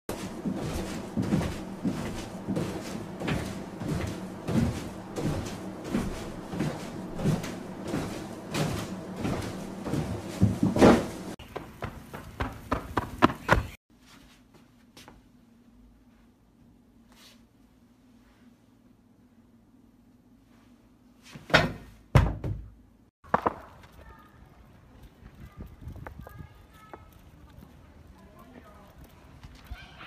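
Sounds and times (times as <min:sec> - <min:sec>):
trampoline thumping and creaking: 0:00.1 - 0:13.8.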